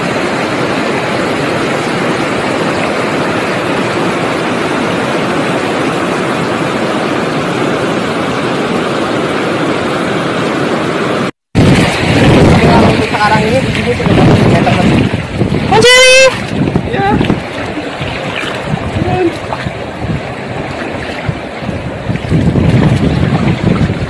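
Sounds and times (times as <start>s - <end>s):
river water rushing over rapids: 0.0s - 24.0s.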